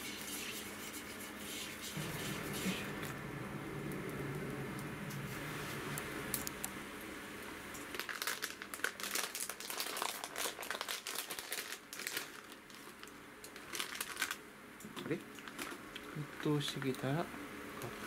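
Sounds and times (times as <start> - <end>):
wood burning: 2.0 - 8.8
plastic crinkling: 7.8 - 14.4, 15.0 - 16.1.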